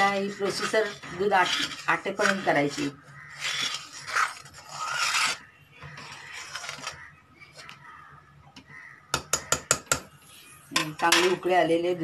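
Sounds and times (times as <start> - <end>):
metal ladle scraping a pan: 0.0 - 7.7.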